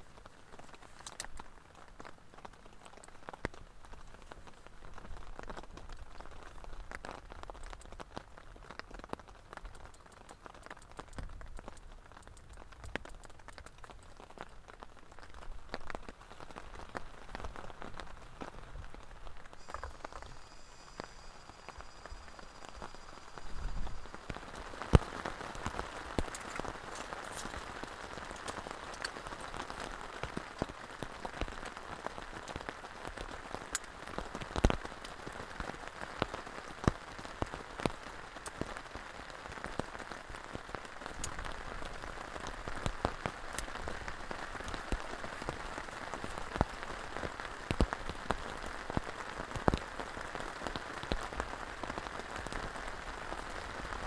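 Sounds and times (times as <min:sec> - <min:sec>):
heavy rain on a tent: 0:00.0 - 0:54.0
raindrops tapping: 0:00.0 - 0:54.0.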